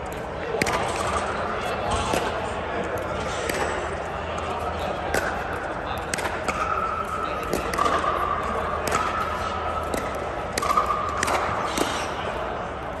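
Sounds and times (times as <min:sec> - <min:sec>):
paddles hitting plastic ball: 0:01.8 - 0:12.0
ball bouncing on court: 0:07.4 - 0:11.9.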